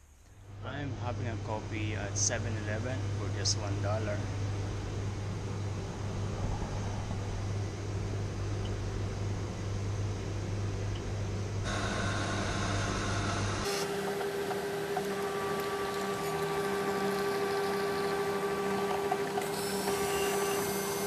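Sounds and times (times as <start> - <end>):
coffee machine motor whine: 0.5 - 21.0
coffee running into cup: 13.9 - 21.0.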